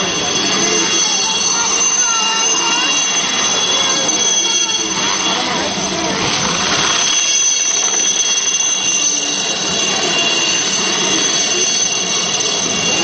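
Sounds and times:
helicopter passing overhead: 0.0s - 13.0s.

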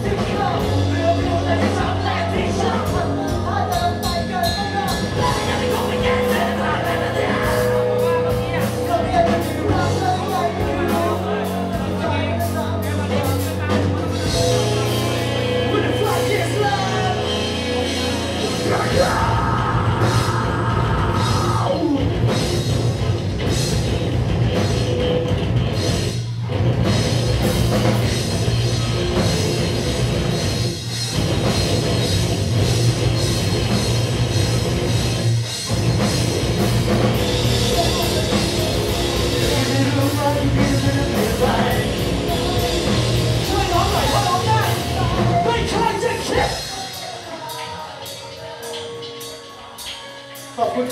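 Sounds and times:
person singing: 0.0s - 22.3s, 37.6s - 50.9s
rock band playing live: 0.0s - 50.9s.

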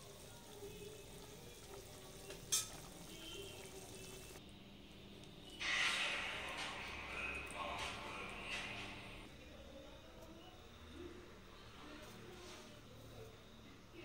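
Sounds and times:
gravy simmering and bubbling: 0.0s - 9.4s
ladle clinking against pan: 2.4s - 2.9s.

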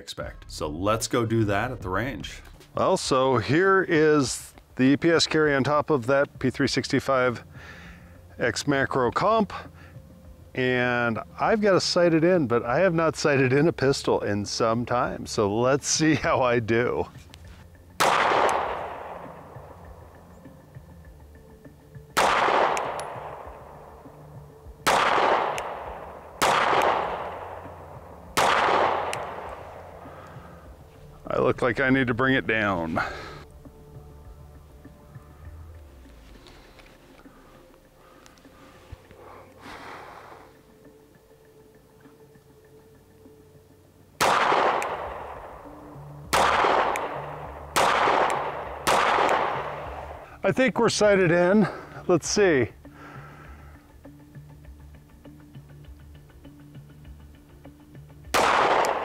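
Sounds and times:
gunshot echo: 18.0s - 19.5s, 22.2s - 23.6s, 24.8s - 27.7s, 28.3s - 29.8s, 44.2s - 45.7s, 46.3s - 50.2s, 58.3s - 59.0s
pistol shots: 18.0s - 19.5s, 22.2s - 23.7s, 24.8s - 27.7s, 28.3s - 29.8s, 44.2s - 45.6s, 46.3s - 50.2s, 58.3s - 59.0s.

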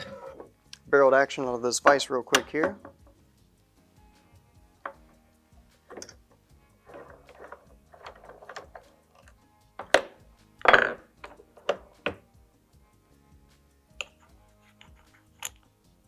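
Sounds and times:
metal clattering and knocking: 2.3s - 3.2s, 6.8s - 9.0s, 9.8s - 12.3s
steel tools set down on wood: 6.8s - 8.9s, 9.8s - 12.2s.

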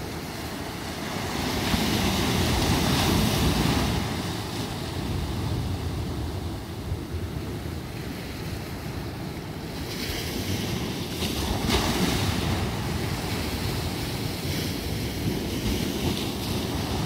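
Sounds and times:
waves breaking on rocks: 0.0s - 6.9s
wind rumbling on microphone: 0.0s - 17.0s.

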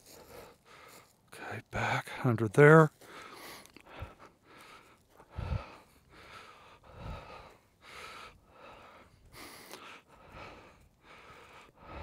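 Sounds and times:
footsteps crunching through mulch: 0.0s - 1.3s.

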